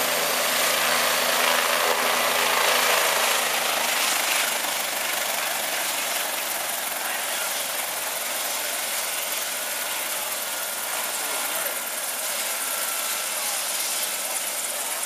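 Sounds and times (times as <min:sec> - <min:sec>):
helicopter turbine and rotor noise: 0:00.0 - 0:15.0.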